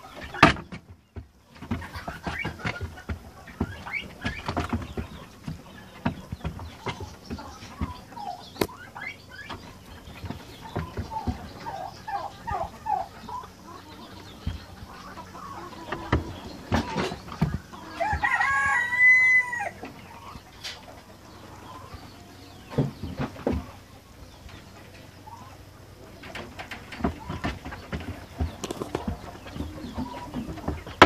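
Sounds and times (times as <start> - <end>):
chicken clucking: 0.0 - 31.0
rooster crowing: 17.8 - 19.8
rabbit paws on wooden floor: 26.4 - 31.0.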